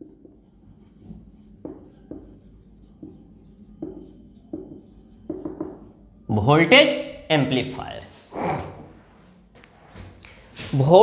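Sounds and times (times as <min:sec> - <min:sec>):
marker writing on whiteboard: 0:00.0 - 0:06.1.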